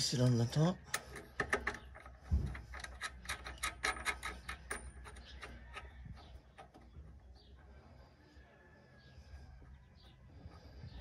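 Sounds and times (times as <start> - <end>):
nut threading metal clicks: 0.8 - 7.0.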